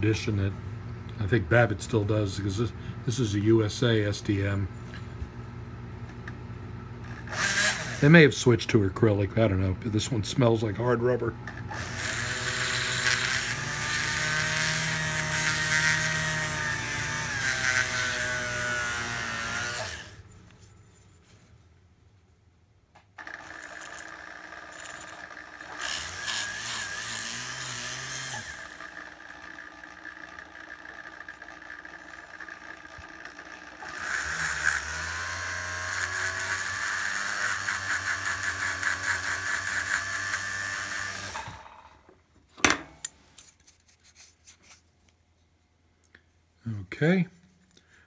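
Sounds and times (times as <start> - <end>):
rotary tool grinding rubber: 7.1 - 8.1, 11.7 - 20.5, 23.2 - 41.8.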